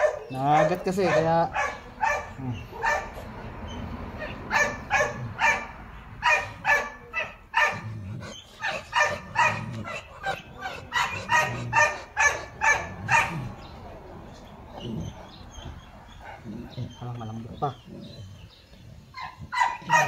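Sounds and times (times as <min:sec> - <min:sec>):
dog barking: 0:00.0 - 0:03.2, 0:04.2 - 0:07.9, 0:08.6 - 0:13.5, 0:19.2 - 0:20.0.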